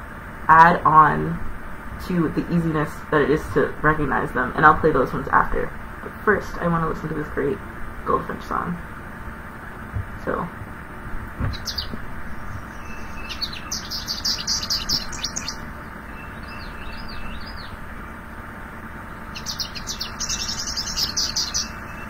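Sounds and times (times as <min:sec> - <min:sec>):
goldfinch twittering song: 0:11.5 - 0:18.3, 0:19.0 - 0:22.0
slurred bird notes: 0:11.5 - 0:18.3, 0:18.9 - 0:22.0.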